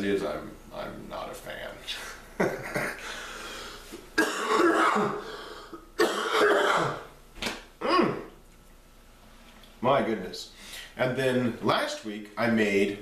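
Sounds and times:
man coughing: 2.5 - 3.0, 4.2 - 5.4, 6.0 - 7.1, 7.8 - 8.3.

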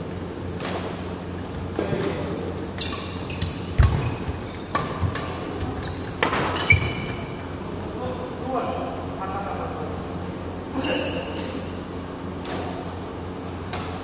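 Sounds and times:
shoes squeaking on court: 0.6 - 7.5, 10.8 - 11.8
racket striking shuttlecock: 4.6 - 6.8, 13.7 - 14.0.

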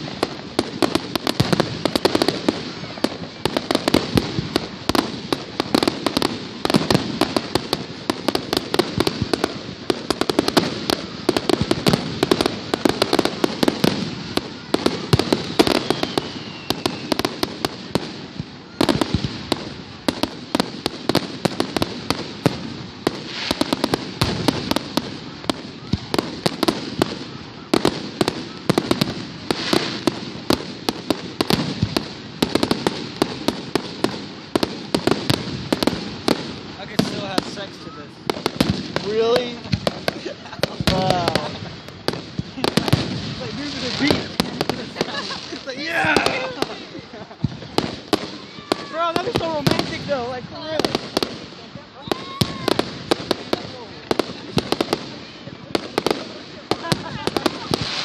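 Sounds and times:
fireworks bangs and crackles: 0.0 - 58.0
falling firework whistle: 13.8 - 17.4.

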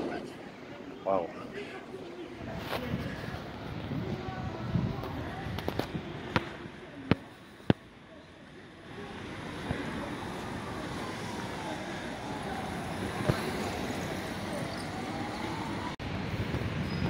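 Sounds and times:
distant traffic: 0.0 - 17.0
wind on microphone: 2.4 - 7.3.

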